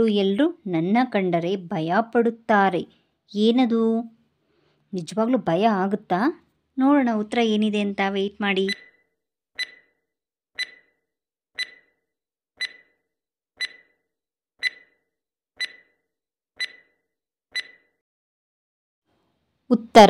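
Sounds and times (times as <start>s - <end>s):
timer tick with ringing tone: 8.6s - 9.0s, 9.6s - 10.0s, 10.6s - 11.0s, 11.6s - 12.0s, 12.6s - 13.0s, 13.6s - 14.0s, 14.6s - 16.0s, 16.6s - 18.0s.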